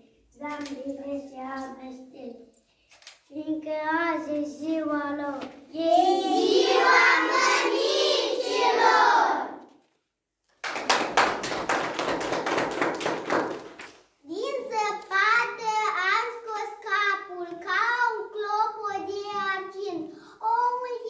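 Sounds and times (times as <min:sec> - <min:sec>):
children singing: 0:05.8 - 0:09.6
hand clapping: 0:10.5 - 0:14.0.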